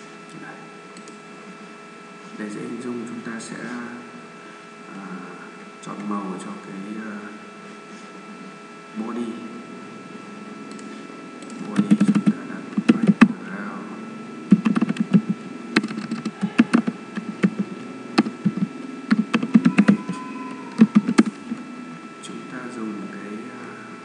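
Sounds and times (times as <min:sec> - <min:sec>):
faint steady hum: 0:00.0 - 0:24.0
typing on computer keyboard: 0:10.7 - 0:13.3, 0:14.5 - 0:17.6, 0:18.2 - 0:20.1, 0:20.8 - 0:21.4.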